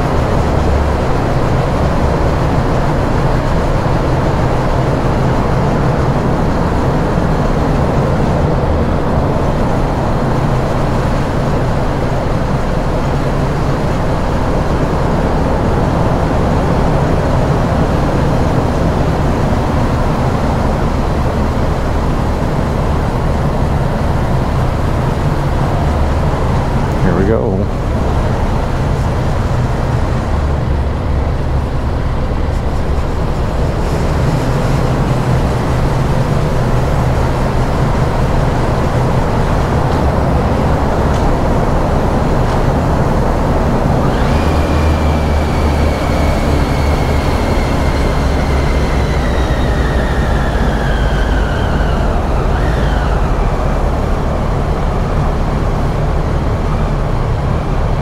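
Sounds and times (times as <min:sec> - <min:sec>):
high whine falling in pitch: 0:00.0 - 0:58.0
motorcycle engine and road rumble: 0:00.0 - 0:58.0.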